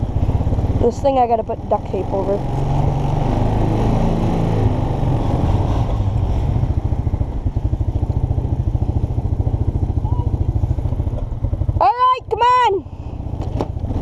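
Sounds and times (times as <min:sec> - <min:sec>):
engine idling: 0:06.1 - 0:13.9.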